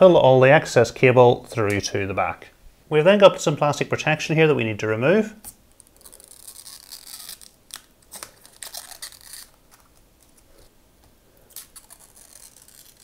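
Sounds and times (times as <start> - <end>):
plastic film peeling: 5.7 - 10.7, 11.4 - 13.0.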